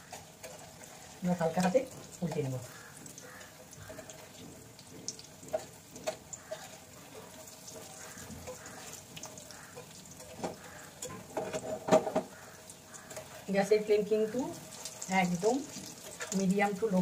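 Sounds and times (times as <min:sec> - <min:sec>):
fish sizzling in hot oil: 0:00.0 - 0:17.0
spatula knocking against pan: 0:07.8 - 0:13.3.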